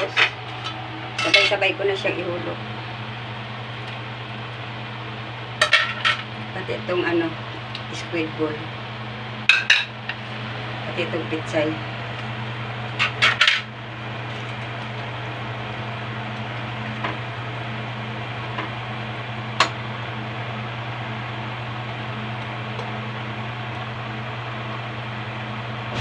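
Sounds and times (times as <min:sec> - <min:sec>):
low hum and hiss: 0:00.0 - 0:26.0
metal tongs clinking on pot: 0:01.2 - 0:01.6.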